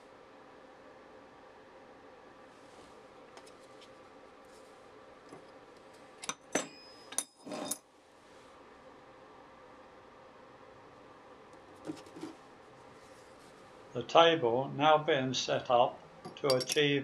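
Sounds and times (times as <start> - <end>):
metallic clinks: 16.3 - 16.9.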